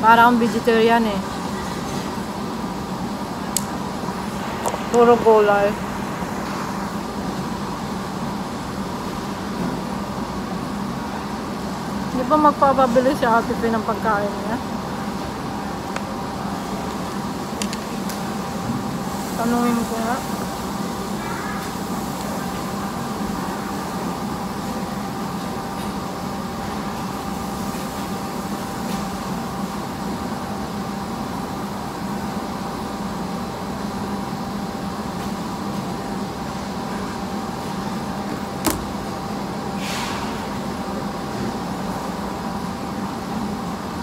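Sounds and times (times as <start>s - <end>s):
low mechanical hum: 0.0s - 44.0s
brief hiss: 39.8s - 40.4s.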